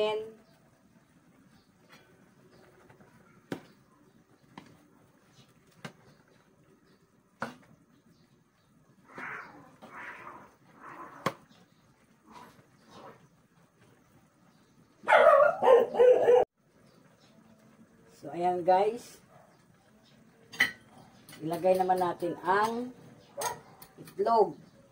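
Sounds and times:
dog barking: 15.0 - 16.5, 19.3 - 19.6, 23.4 - 24.0.

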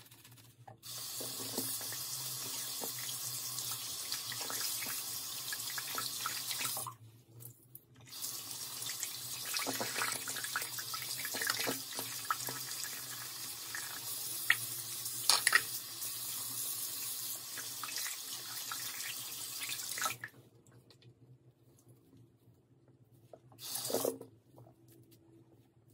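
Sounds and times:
tap water running into sink: 0.8 - 6.9, 8.1 - 15.8
water splashes and drips: 8.8 - 12.9.

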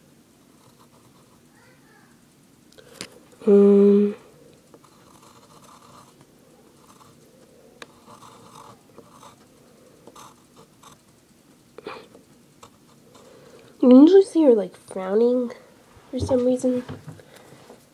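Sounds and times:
pencil scratching on paper: 0.5 - 1.4, 4.7 - 13.4.

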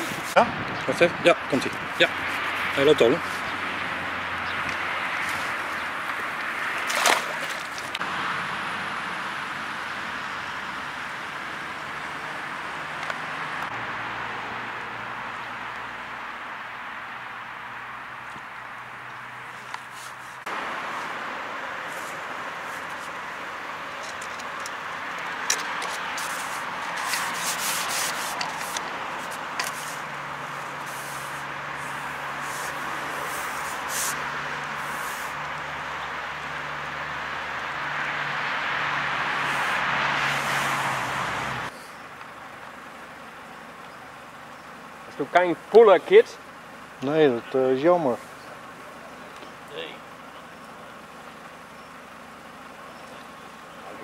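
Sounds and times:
road traffic: 0.0 - 54.0
wind: 0.0 - 54.0
fish splashing into water: 6.4 - 8.0
fishing pole scraping through hands: 19.5 - 21.1, 21.8 - 23.2, 24.0 - 35.4.

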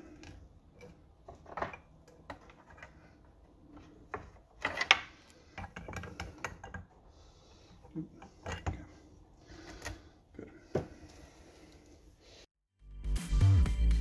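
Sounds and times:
metal parts clicking and knocking: 0.1 - 7.0.

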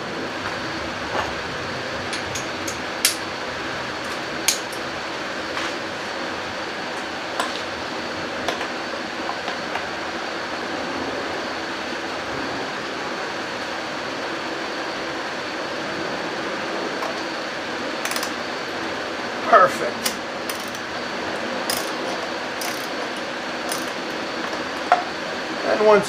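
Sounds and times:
steady background hum: 0.0 - 26.0.

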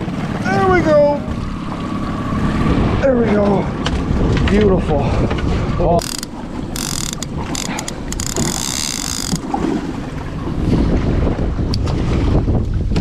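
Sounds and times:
wind noise on microphone: 2.3 - 13.0
fishing reel ratcheting: 6.0 - 9.5.

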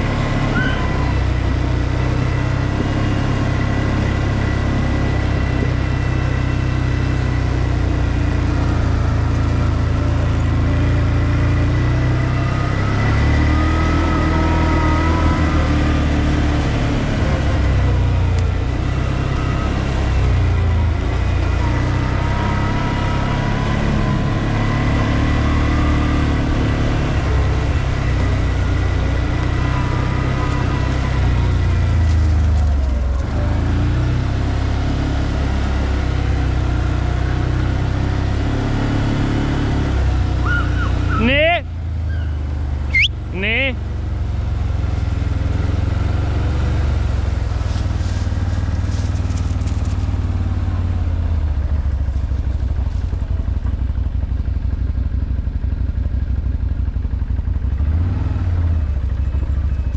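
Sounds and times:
atv engine running: 0.0 - 59.9.

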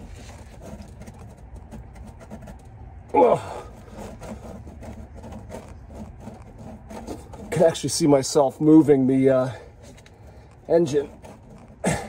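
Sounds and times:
man groaning with effort: 3.1 - 3.8.

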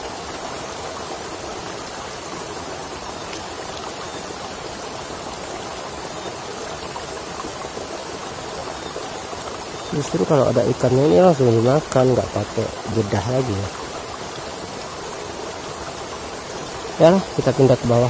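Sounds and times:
stream flowing over rocks: 0.0 - 18.0.

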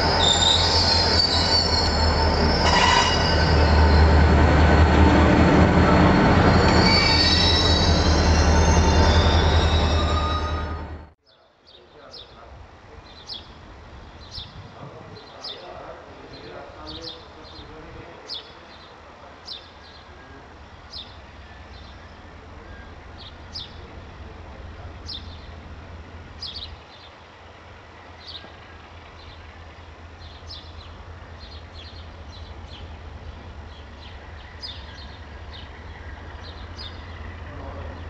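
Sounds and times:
locomotive rumble: 0.0 - 11.2, 20.0 - 38.0.

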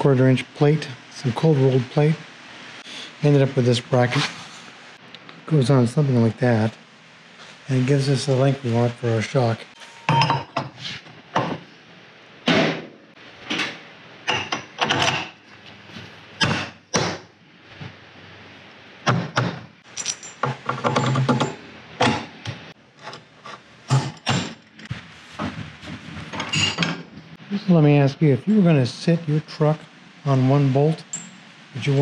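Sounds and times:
metal clanks and knocks: 19.3 - 22.3, 26.3 - 27.1.

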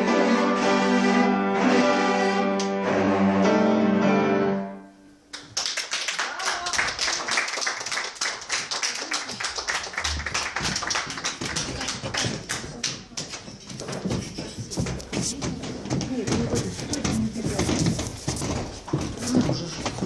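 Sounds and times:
cello ensemble chord: 0.0 - 5.0
audience applause: 5.4 - 13.0.

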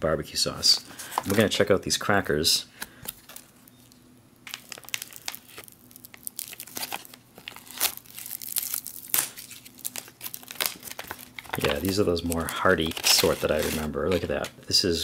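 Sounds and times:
foil pouch crinkling: 2.9 - 14.5.

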